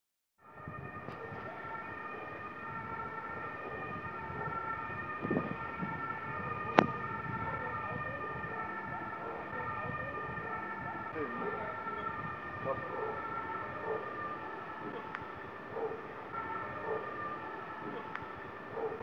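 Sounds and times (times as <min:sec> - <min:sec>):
sharp crack: 0:06.7 - 0:07.0
steady warning tone: 0:07.3 - 0:19.0.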